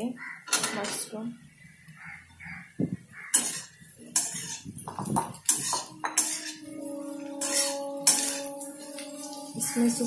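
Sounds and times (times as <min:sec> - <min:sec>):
metal spatula scraping a pan: 0:03.2 - 0:10.0.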